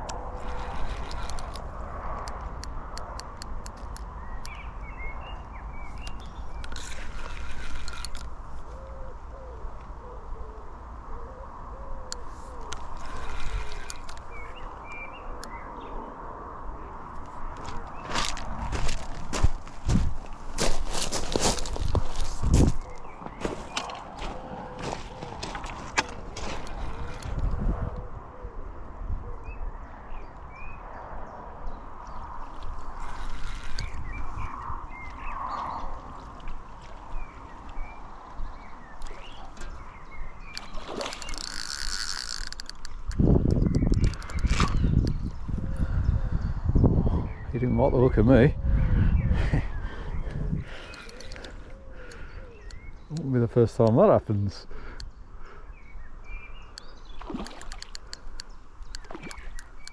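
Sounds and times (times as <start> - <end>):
sharp clicks: 0.0 - 4.6, 12.1 - 14.5, 40.5 - 45.4, 50.8 - 54.0, 56.7 - 59.9
low rumble of wind or river: 0.0 - 59.9
small birds chirping: 3.0 - 9.6, 12.0 - 16.2, 17.6 - 27.6, 29.4 - 59.9.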